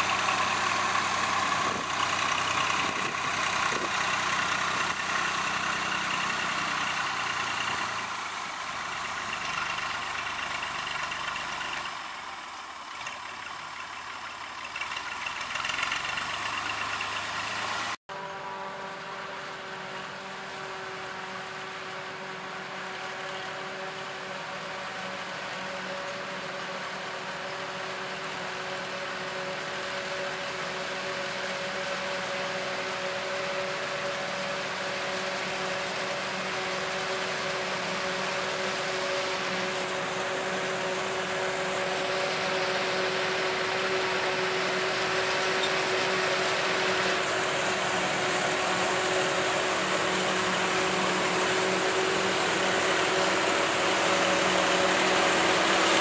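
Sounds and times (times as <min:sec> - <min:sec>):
harvester machine whine: 0:00.0 - 0:56.0.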